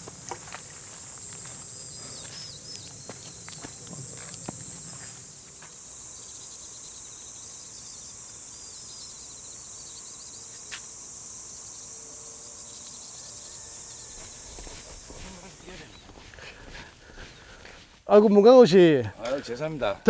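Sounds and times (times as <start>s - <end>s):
insects chirring: 0.0s - 20.0s
faint chirps: 1.8s - 10.9s.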